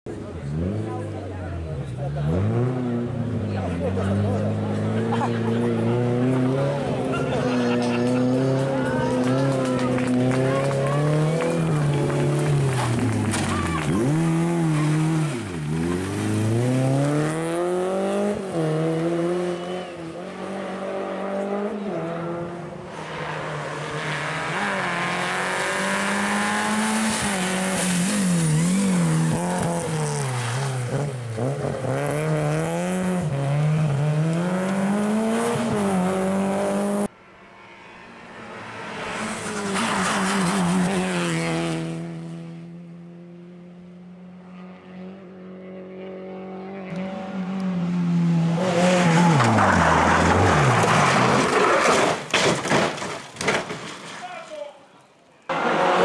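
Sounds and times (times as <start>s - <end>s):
car engine approaching: 0.1s - 51.7s
rally car engine revving: 0.1s - 53.1s, 55.5s - 56.0s
tyre noise: 6.7s - 18.3s.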